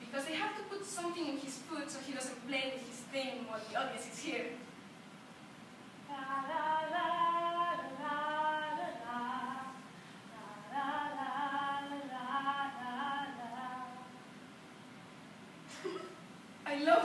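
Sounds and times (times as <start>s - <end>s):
person singing unaccompanied: 6.1s - 14.2s.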